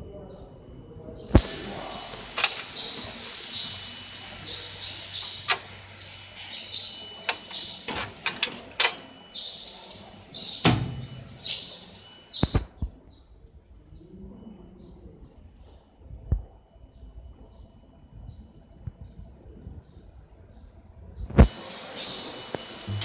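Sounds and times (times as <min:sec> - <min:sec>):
faint high chirps: 0:01.3 - 0:07.9.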